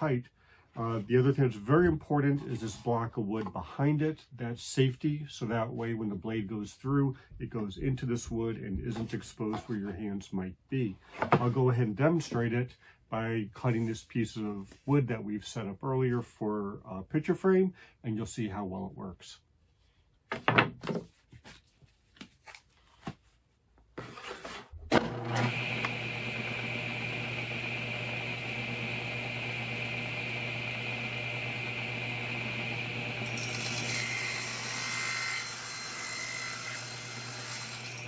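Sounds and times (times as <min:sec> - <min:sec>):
table saw humming and whining: 0:25.0 - 0:38.0
saw blade cutting wood: 0:32.8 - 0:38.0.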